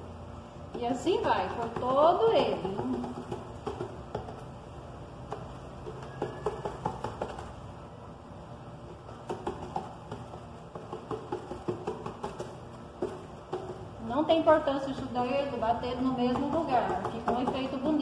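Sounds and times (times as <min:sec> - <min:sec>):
fingertips tapping on styrofoam: 0:00.7 - 0:04.6, 0:05.3 - 0:07.6, 0:09.1 - 0:14.0, 0:14.8 - 0:18.0.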